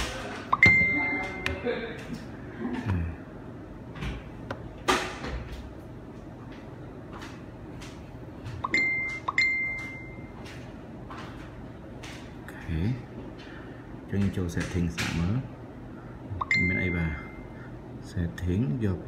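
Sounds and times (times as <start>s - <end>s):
phone notification chime: 0.6s - 1.7s.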